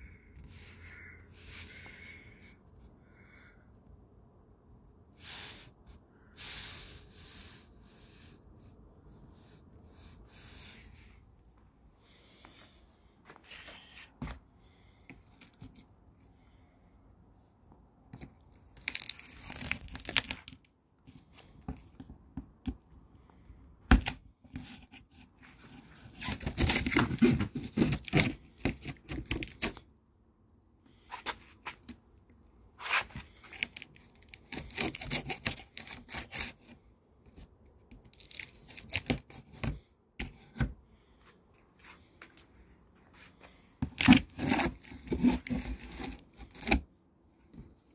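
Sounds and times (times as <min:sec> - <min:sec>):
packing tape and cardboard tearing: 0:18.2 - 0:20.6, 0:26.0 - 0:29.8, 0:32.8 - 0:36.8, 0:38.0 - 0:39.8, 0:43.8 - 0:46.8.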